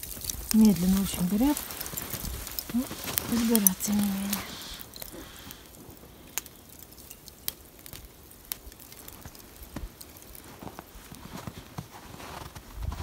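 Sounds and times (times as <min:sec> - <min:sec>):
footsteps crunching in snow: 0:00.0 - 0:05.4, 0:09.1 - 0:13.0.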